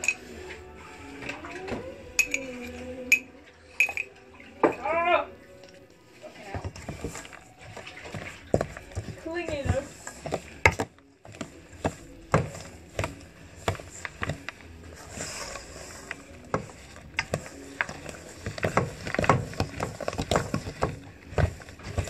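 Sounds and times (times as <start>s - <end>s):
spoon scraping metal bowl: 0.0s - 0.8s, 2.2s - 4.1s.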